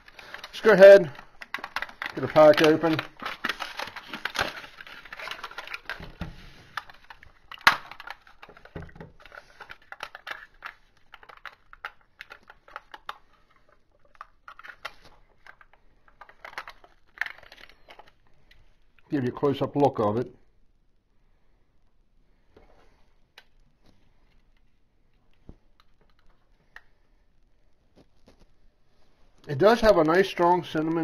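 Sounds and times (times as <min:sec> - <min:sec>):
plastic cups clicking and crinkling: 0:00.0 - 0:19.1
foil lid peeling: 0:01.5 - 0:10.4.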